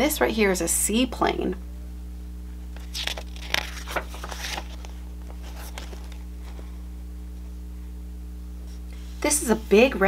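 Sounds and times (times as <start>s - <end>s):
steady low hum: 0.0s - 10.0s
paper pages rustling: 2.7s - 6.8s.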